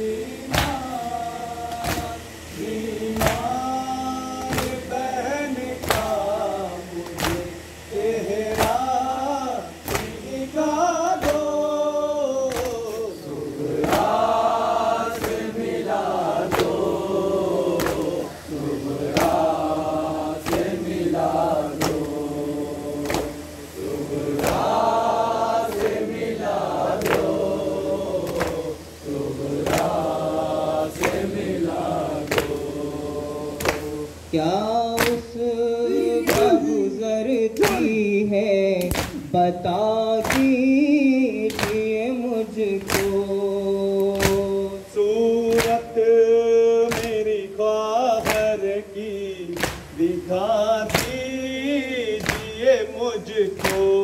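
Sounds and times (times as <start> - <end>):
men chanting in unison: 0.0 - 54.0
hands slapping chests: 7.0 - 7.5, 9.8 - 10.2, 12.5 - 13.0, 15.1 - 15.5, 17.8 - 18.3, 19.1 - 19.5, 20.4 - 20.8, 21.8 - 22.2, 23.0 - 23.4, 24.4 - 24.8, 28.2 - 28.6, 33.6 - 33.9, 36.3 - 36.6, 38.8 - 39.2, 40.2 - 40.6, 41.5 - 41.8, 42.8 - 43.2, 44.0 - 44.5, 45.5 - 45.8, 46.9 - 47.2, 48.2 - 48.5, 49.6 - 49.9, 50.9 - 51.2, 52.2 - 52.6, 53.6 - 53.9.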